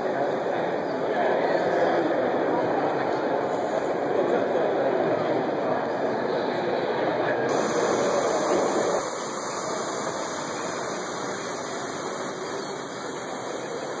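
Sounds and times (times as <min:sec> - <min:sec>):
steam locomotive hissing: 0:07.5 - 0:14.0.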